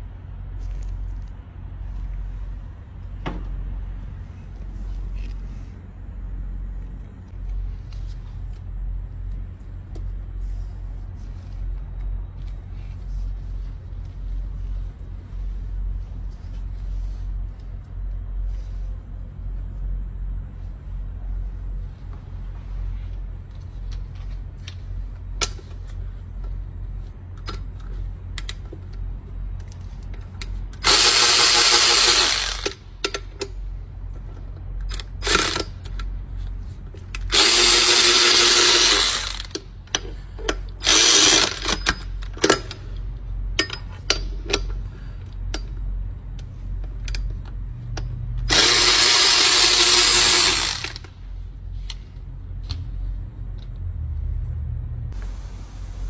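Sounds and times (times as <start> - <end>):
power ratchet whirring: 30.8 - 32.9, 34.9 - 36.0, 37.2 - 39.6, 40.8 - 42.6, 48.4 - 51.2
low rumble: 52.4 - 55.2.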